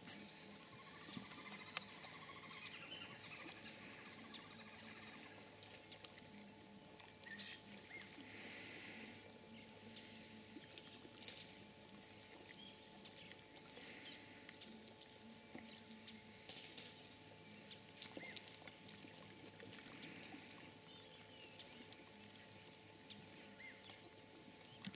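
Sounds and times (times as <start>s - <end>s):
high insect hiss: 0.0s - 24.9s
faint bird chirps: 0.1s - 24.9s.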